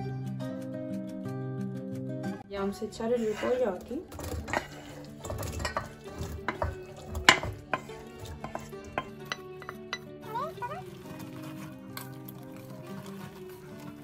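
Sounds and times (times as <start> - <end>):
spatula scraping metal frying pan: 2.9 - 10.1
wire whisk stirring: 3.0 - 10.1, 10.8 - 14.0.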